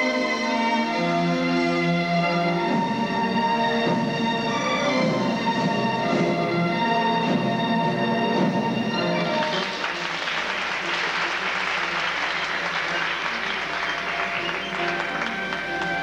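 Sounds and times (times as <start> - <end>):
music: 0.0 - 16.0
audience applauding: 9.2 - 16.0.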